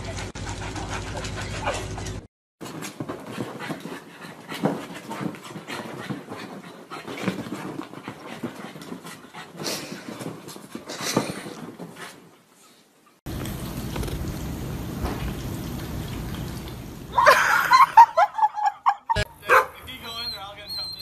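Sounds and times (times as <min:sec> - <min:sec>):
small dog panting: 0:03.2 - 0:12.8.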